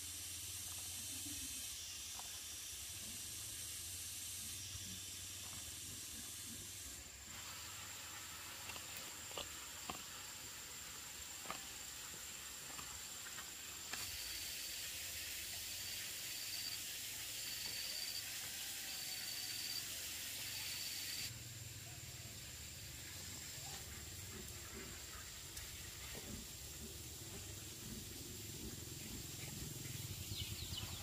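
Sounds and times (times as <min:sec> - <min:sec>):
outdoor ambience hiss: 0:00.0 - 0:31.0.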